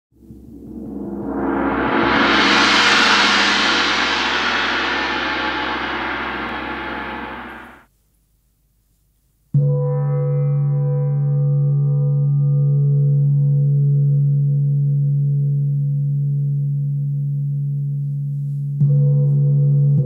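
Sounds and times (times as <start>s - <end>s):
gong struck with felt mallet: 0.3s - 7.8s
shimmering gong-like swell: 0.3s - 7.8s.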